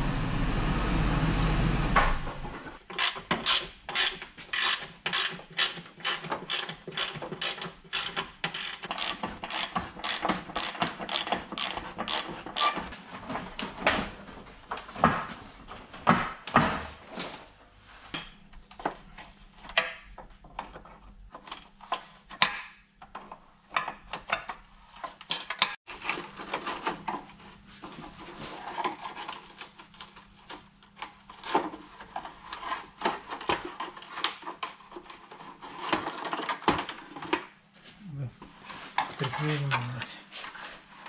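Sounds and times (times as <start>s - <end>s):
clicks and clatter of car parts: 2.8s - 15.4s, 18.2s - 27.4s.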